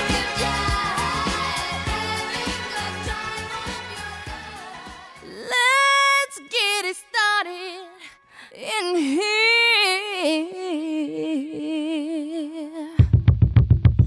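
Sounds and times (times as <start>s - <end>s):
woman singing unaccompanied: 5.2s - 13.0s.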